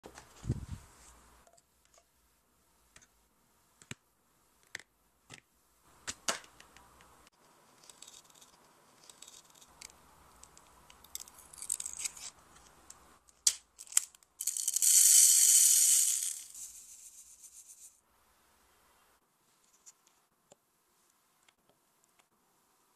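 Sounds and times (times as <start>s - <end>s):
beads rattling into plastic tray: 13.8s - 18.0s.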